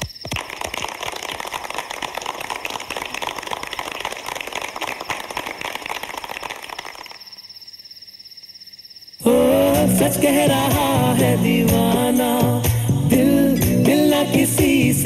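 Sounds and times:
many hands clapping: 0.0s - 7.4s.

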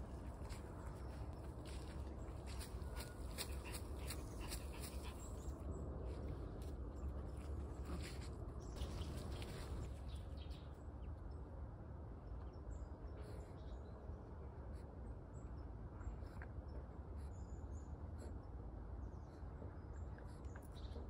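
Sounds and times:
low steady rumble: 0.0s - 21.0s.

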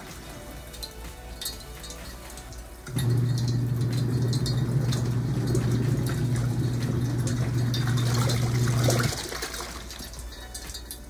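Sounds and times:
washing machine motor hum: 2.3s - 11.0s
laundry sloshing in water: 3.1s - 10.8s.

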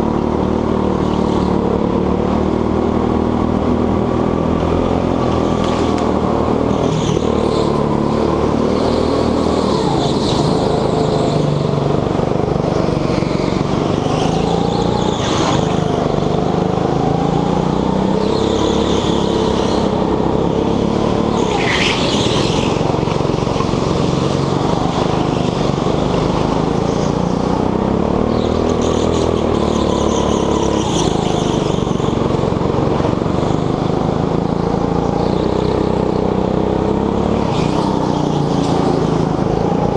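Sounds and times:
go-kart engine revving: 0.0s - 39.9s
high squeals: 21.2s - 23.4s.

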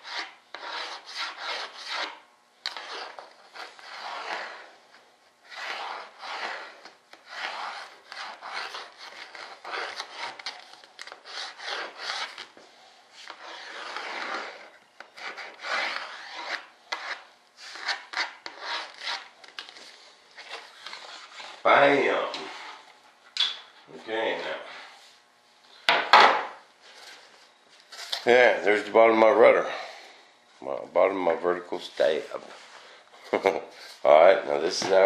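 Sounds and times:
sanding wooden strip: 0.0s - 4.7s, 5.5s - 10.6s, 11.2s - 12.4s, 13.4s - 19.2s.

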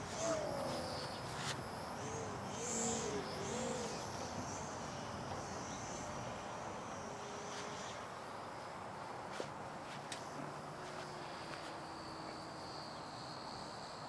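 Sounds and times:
bird cooing: 0.0s - 1.4s, 2.0s - 5.0s
outdoor hiss: 0.0s - 14.0s.

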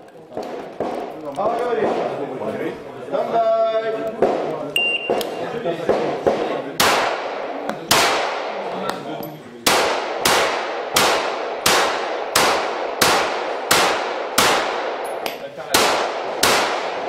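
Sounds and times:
pistol shots echoing indoors: 6.2s - 7.3s, 9.6s - 15.1s, 15.7s - 17.0s.

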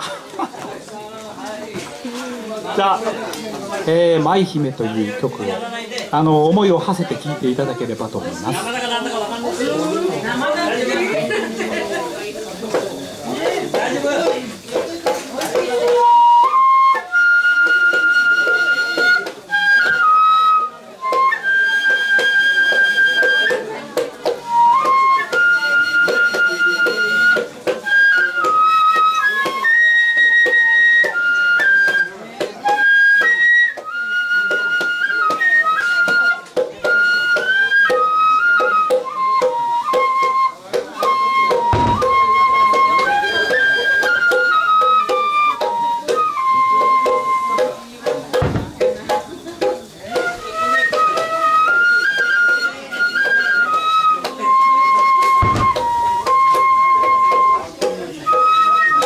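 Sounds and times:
bamboo flute melody: 0.0s - 59.0s
percussion beat: 0.0s - 59.0s
hand drum beating: 12.7s - 16.6s, 36.2s - 52.6s, 54.4s - 58.5s
deep drum thump: 41.6s - 43.3s, 48.4s - 49.7s, 55.4s - 56.5s.

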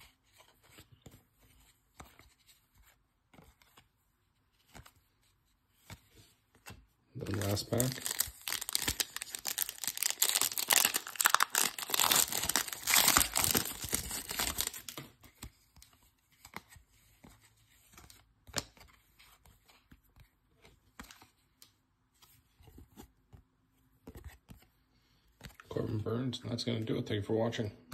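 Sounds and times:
cards being handled: 0.0s - 25.7s
foil wrapper tearing and crinkling: 7.2s - 15.0s.

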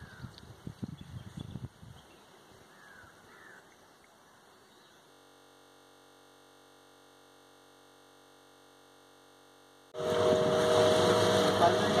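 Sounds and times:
wind noise: 0.0s - 2.1s
faint steady hum: 0.0s - 12.0s
motorboat engine running: 4.8s - 12.0s
water noise: 10.0s - 12.0s.

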